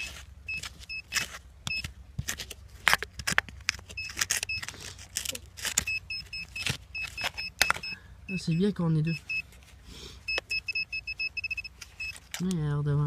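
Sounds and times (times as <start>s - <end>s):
pinpointer high beeps: 5.8s - 9.5s, 10.3s - 12.2s.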